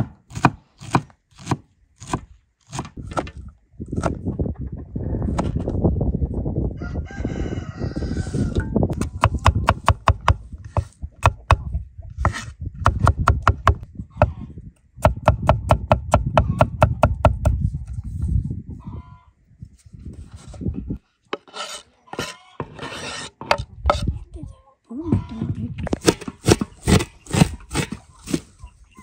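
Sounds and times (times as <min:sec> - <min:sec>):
rooster crowing: 0:06.8 - 0:08.7.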